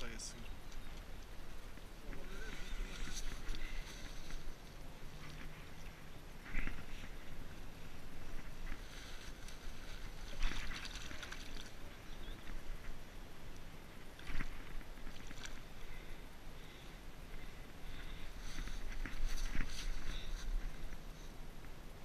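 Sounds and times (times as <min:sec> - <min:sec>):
fish splashing in water: 0:10.0 - 0:12.0.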